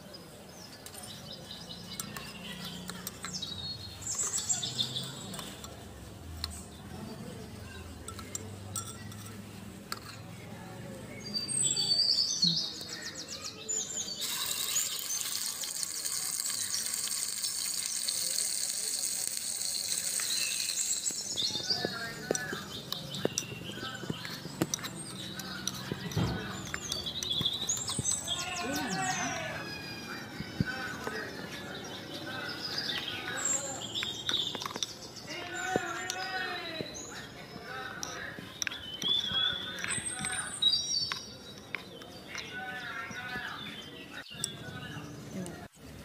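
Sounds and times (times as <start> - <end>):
small birds chirping: 0.0 - 45.9
spoon clinking metal pot: 8.0 - 10.3
onion sizzling in hot oil: 14.2 - 21.4.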